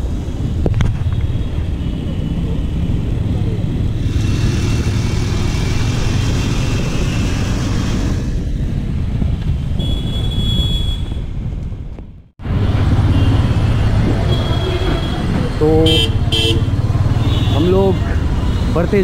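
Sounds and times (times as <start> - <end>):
wind noise: 0.0 - 16.4
motorcycle engine rumble: 0.1 - 18.8.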